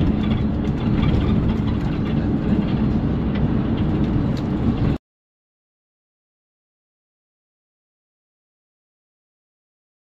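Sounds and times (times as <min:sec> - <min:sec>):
car road and engine rumble: 0:00.0 - 0:05.0.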